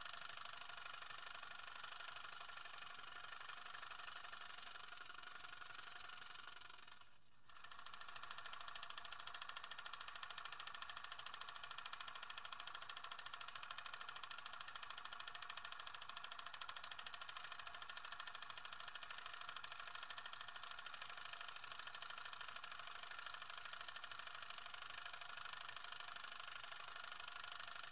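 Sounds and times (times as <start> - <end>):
film projector clatter: 0.0 - 27.9.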